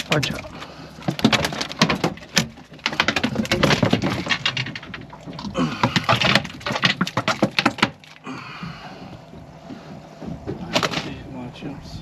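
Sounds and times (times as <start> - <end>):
fish slapping on deck: 0.0 - 11.2.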